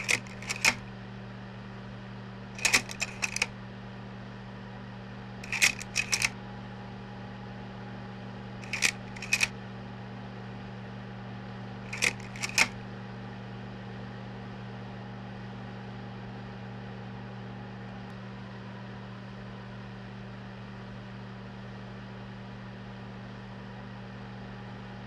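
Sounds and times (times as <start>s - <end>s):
sharp mechanical clicks: 0.0s - 0.8s, 2.6s - 3.5s, 5.4s - 6.3s, 8.6s - 9.5s, 11.9s - 12.8s
projector humming: 0.0s - 0.9s, 2.6s - 3.5s, 5.4s - 6.3s.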